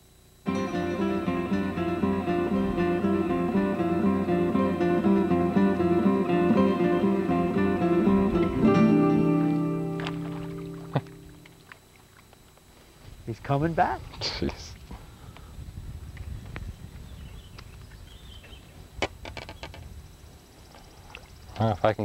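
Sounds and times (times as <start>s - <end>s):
instrumental background music: 0.5s - 11.5s.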